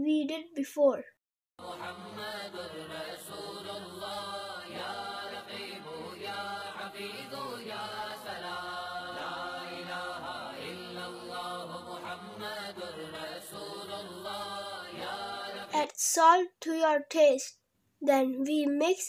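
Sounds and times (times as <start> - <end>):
voices chanting devotional song: 1.6 - 16.3.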